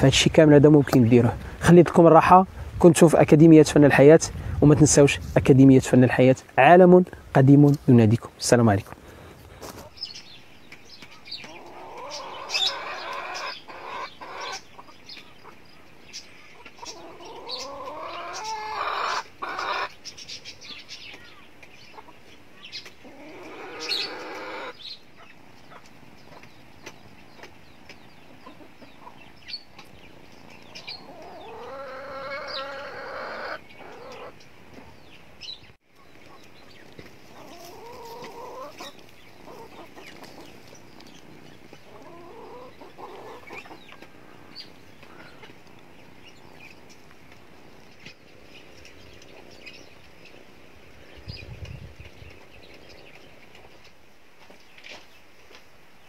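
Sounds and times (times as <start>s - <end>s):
hens clucking: 11.4s - 15.8s, 16.6s - 20.1s, 21.9s - 29.9s, 30.5s - 34.4s, 36.2s - 45.9s.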